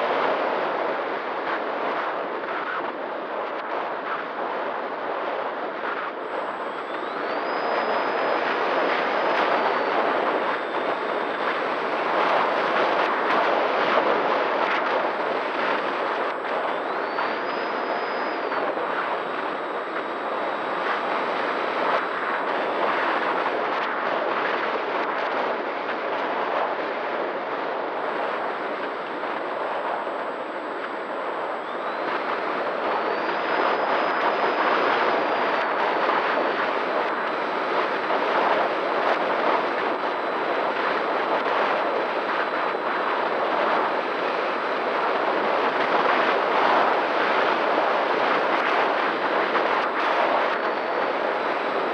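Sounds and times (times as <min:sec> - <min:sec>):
faint high whine: 0:00.0 - 0:51.9
wind rushing over camera: 0:00.0 - 0:51.9
electric motor and propeller: 0:06.2 - 0:13.6, 0:15.8 - 0:23.1, 0:28.8 - 0:35.5.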